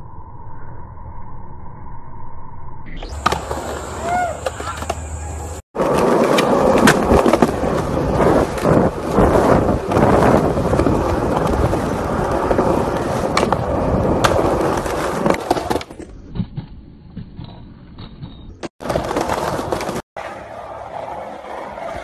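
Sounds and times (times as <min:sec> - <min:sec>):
skateboard wheels rolling on concrete: 0:03.0 - 0:22.0
skateboard clacks: 0:03.1 - 0:16.0.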